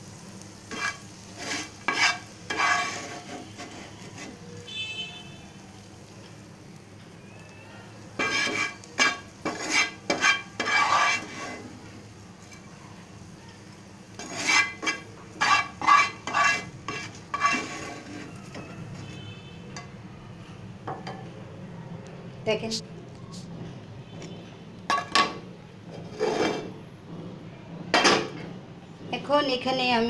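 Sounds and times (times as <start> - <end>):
wooden spatula scraping frying pan: 0.6 - 4.5, 8.2 - 12.6, 14.1 - 19.3, 24.9 - 26.8.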